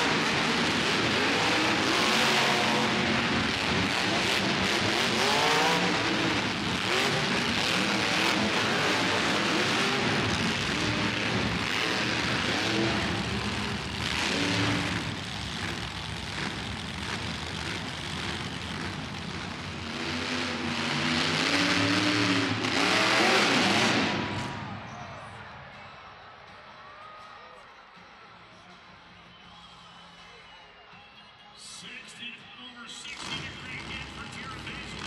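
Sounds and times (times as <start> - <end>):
truck engine revving: 0.0 - 24.8, 33.0 - 35.0.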